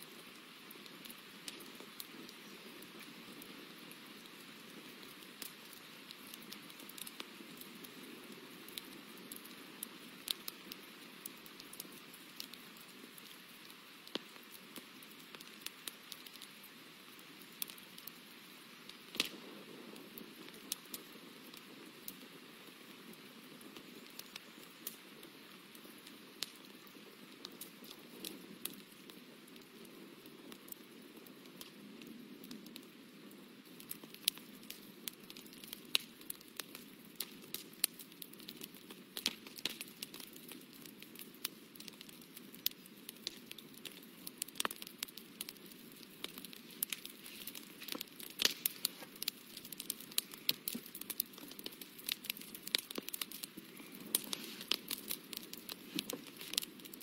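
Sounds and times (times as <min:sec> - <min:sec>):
faint hiss: 0:45.4 - 0:57.0.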